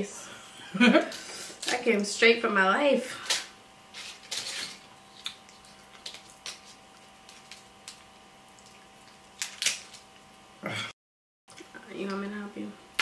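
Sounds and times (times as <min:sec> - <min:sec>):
crab shells cracking: 0:05.2 - 0:10.3.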